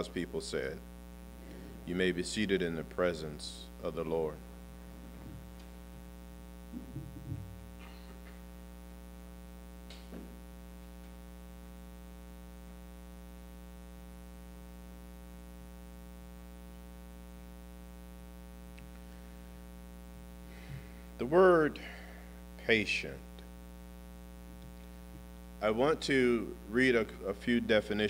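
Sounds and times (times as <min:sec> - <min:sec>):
electrical mains hum: 0:00.0 - 0:28.0.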